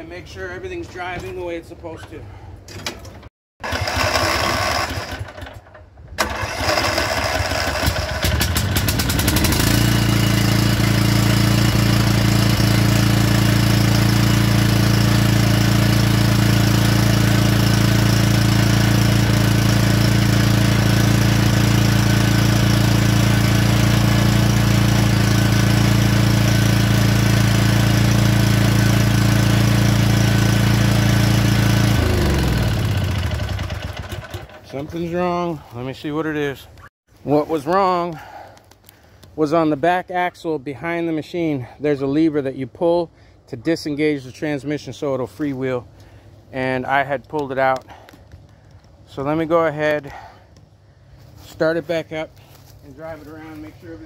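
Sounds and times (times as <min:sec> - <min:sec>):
mower engine cranking and running: 0:02.0 - 0:35.6.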